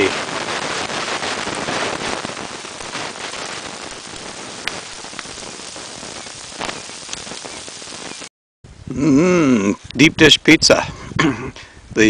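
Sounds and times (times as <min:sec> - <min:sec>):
pizza sizzling in a pan: 0:00.0 - 0:08.3
sharp pops: 0:00.0 - 0:08.3.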